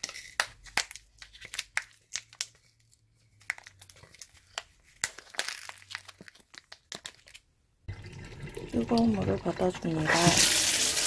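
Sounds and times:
plastic pouch crinkling: 0:00.0 - 0:07.5.

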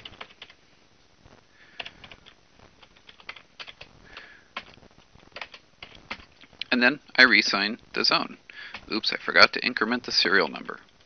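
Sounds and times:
computer keyboard typing: 0:00.0 - 0:00.6, 0:01.8 - 0:06.3, 0:08.6 - 0:09.0.

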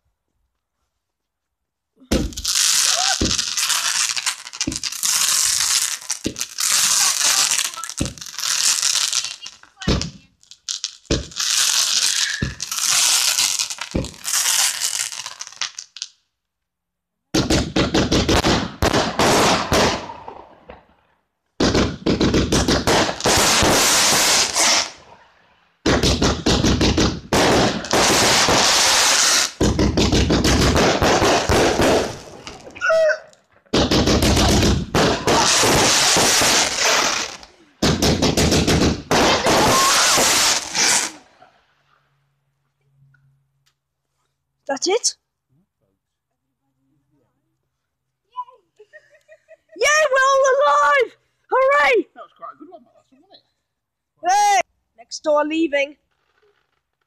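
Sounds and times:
fireworks crackling bangs: 0:02.1 - 0:16.2, 0:17.3 - 0:32.8, 0:33.4 - 0:41.8.

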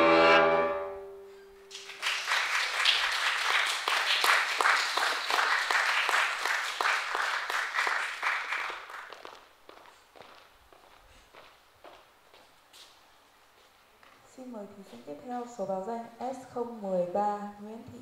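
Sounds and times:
violin and piano chord: 0:00.0 - 0:01.6
audience applause: 0:01.7 - 0:09.6.

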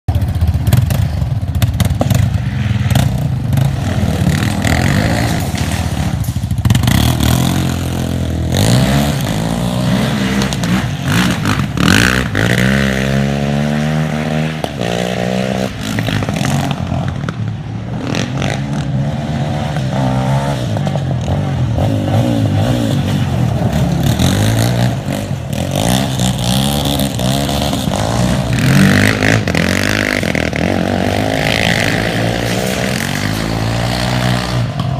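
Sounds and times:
quad engines revving: 0:00.1 - 0:34.9.

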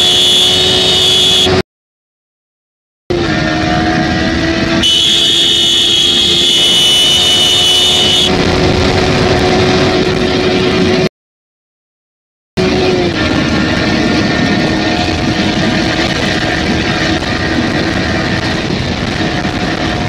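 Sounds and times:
high whine: 0:00.0 - 0:01.6, 0:03.1 - 0:11.1, 0:12.6 - 0:20.0
motorcycle engine running hard: 0:00.0 - 0:01.6, 0:03.1 - 0:11.1, 0:12.6 - 0:20.0
wind rush: 0:03.2 - 0:11.1, 0:12.6 - 0:20.0.

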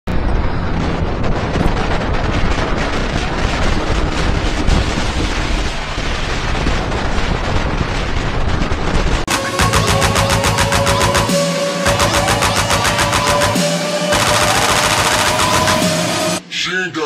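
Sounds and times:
wind buffeting microphone: 0:00.1 - 0:09.3.

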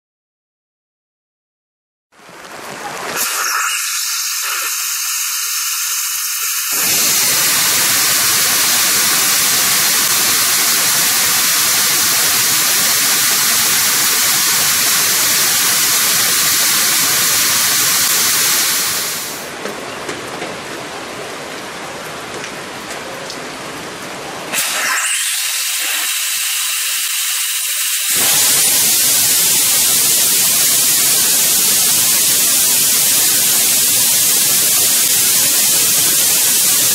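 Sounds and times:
rocket engine high hiss: 0:03.1 - 0:19.6, 0:24.5 - 0:36.9.

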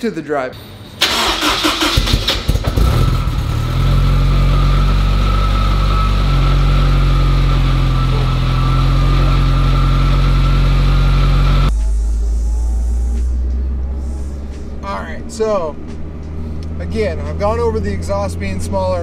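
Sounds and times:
car engine starting and idling: 0:00.7 - 0:19.0
thin engine whine: 0:01.0 - 0:19.0.

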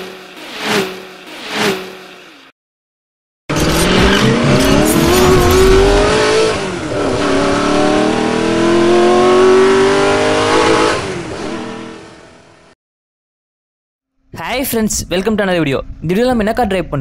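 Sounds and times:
car engine accelerating hard: 0:03.5 - 0:12.7.

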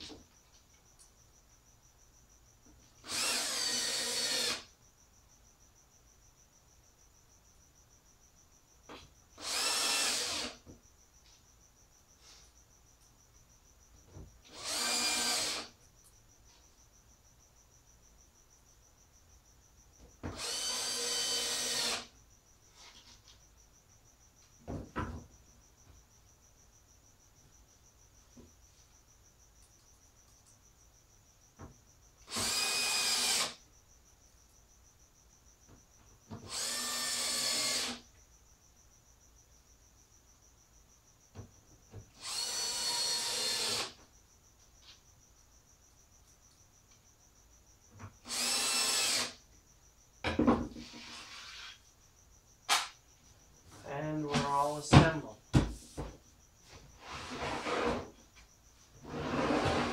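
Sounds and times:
cordless drill driving screws: 0:03.0 - 0:04.7, 0:09.4 - 0:10.6, 0:14.5 - 0:15.7, 0:20.3 - 0:22.1, 0:32.3 - 0:33.6, 0:36.4 - 0:38.0, 0:42.2 - 0:43.9, 0:48.2 - 0:49.4
knock: 0:24.6 - 0:25.3, 0:50.2 - 0:50.9, 0:54.3 - 0:56.2.

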